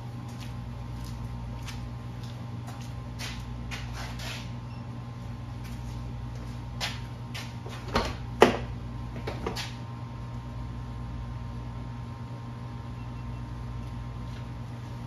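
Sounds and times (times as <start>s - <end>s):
faint footsteps: 0.1s - 4.5s, 5.6s - 8.0s.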